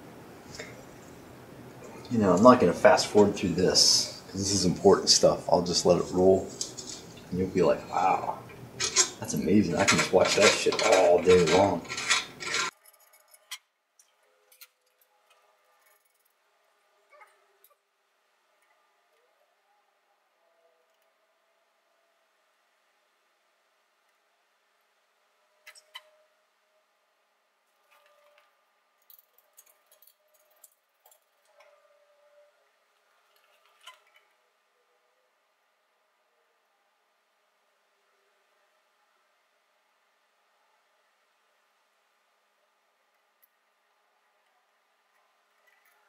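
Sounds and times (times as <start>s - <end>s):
tools clicking and tapping: 8.8s - 16.2s.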